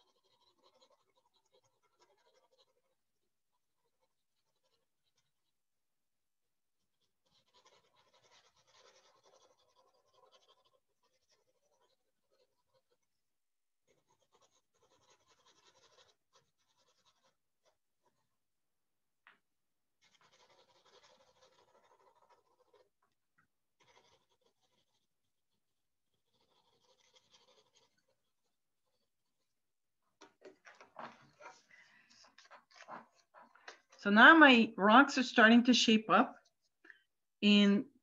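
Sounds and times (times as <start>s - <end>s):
pencil scratching on paper: 0.0s - 5.5s, 6.9s - 18.4s, 20.0s - 34.4s.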